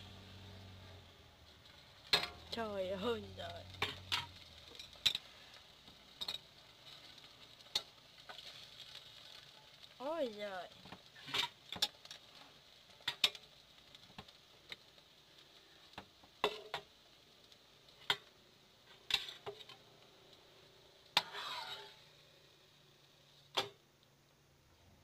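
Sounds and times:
spoon scraping: 0:21.2 - 0:22.1.

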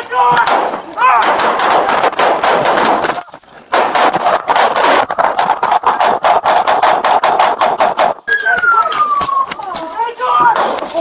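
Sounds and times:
rapid gunshots: 0:00.0 - 0:08.3.

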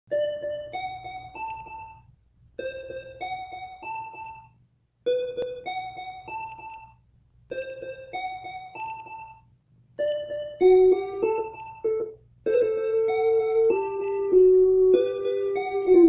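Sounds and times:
slow keyboard melody: 0:10.0 - 0:16.0.

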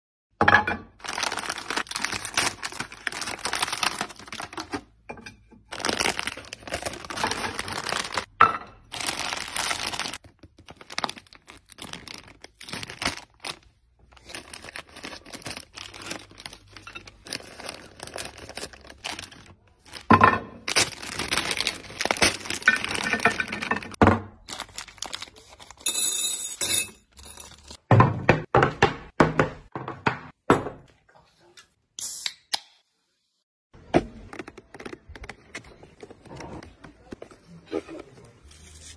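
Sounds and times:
wrappers crinkling and tearing: 0:01.0 - 0:04.8, 0:05.7 - 0:08.3, 0:08.9 - 0:20.1, 0:20.7 - 0:23.6, 0:24.4 - 0:25.8.

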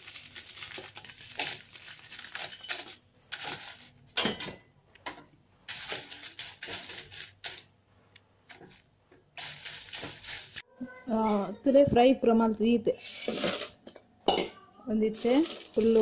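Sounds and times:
dried chillies rustling in pan: 0:00.0 - 0:04.1, 0:05.7 - 0:07.7, 0:08.5 - 0:10.7, 0:13.0 - 0:13.8, 0:15.0 - 0:16.0
wooden spatula scraping pan: 0:12.9 - 0:13.8.

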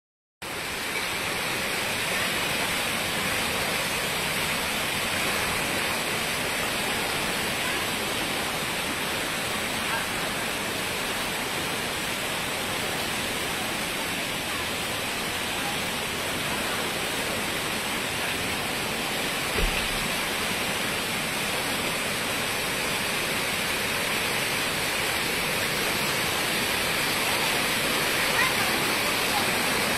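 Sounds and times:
brief thump: 0:19.6 - 0:20.0.

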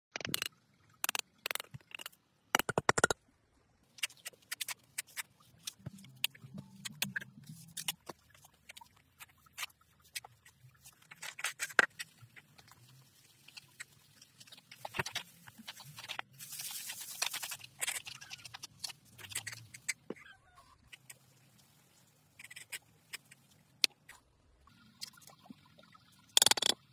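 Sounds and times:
trowel tapping concrete blocks: 0:00.2 - 0:03.2, 0:26.4 - 0:26.8.

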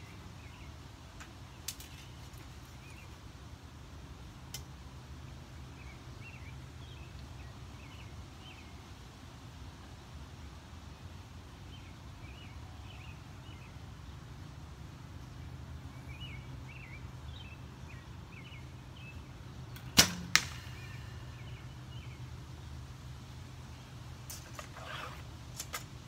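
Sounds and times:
bowstring snap: 0:19.7 - 0:21.0.

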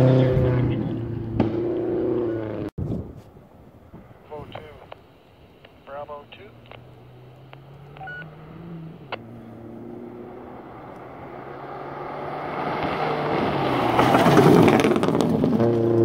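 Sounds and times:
rally car engine approaching: 0:00.0 - 0:02.7, 0:06.1 - 0:16.0.

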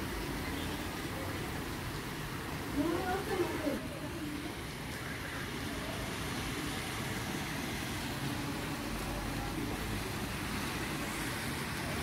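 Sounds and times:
rain falling: 0:00.0 - 0:12.0
running water: 0:00.0 - 0:12.0.

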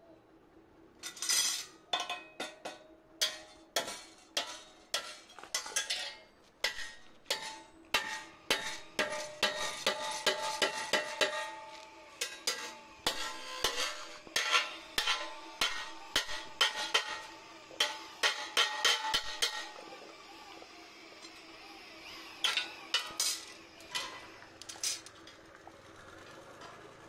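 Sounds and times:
hammer striking steel: 0:01.1 - 0:19.7.

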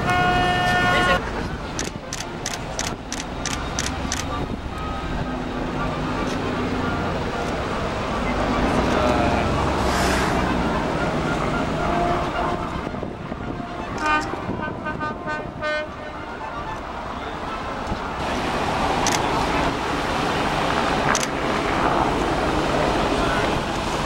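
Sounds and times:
boat horn short toots: 0:00.0 - 0:01.4, 0:11.2 - 0:16.8
outdoor noise: 0:00.0 - 0:24.0.

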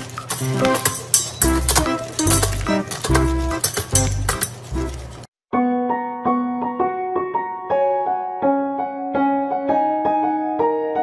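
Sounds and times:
gentle keyboard melody: 0:01.4 - 0:11.0.

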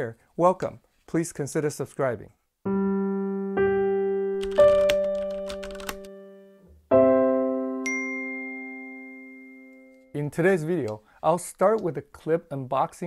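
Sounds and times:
piano-like chord: 0:02.7 - 0:10.1
piano-like jingle notes: 0:02.7 - 0:10.2
high chime: 0:07.8 - 0:10.2.

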